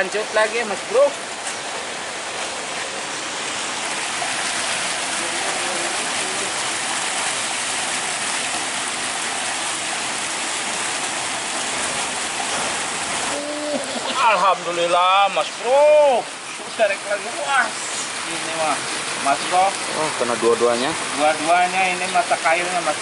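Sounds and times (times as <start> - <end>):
river water rushing: 0.0 - 23.0.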